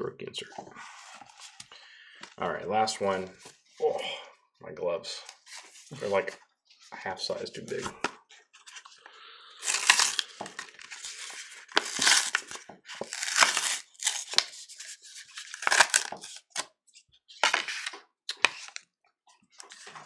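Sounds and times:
plastic wrapper tearing and crinkling: 9.6s - 16.7s.

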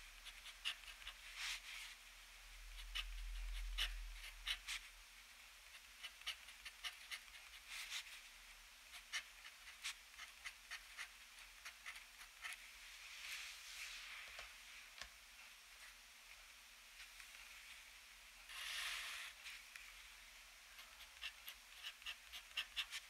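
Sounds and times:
pen nib scratching paper: 0.2s - 1.6s, 2.7s - 4.9s, 5.7s - 8.2s, 8.9s - 12.6s, 20.8s - 23.0s.

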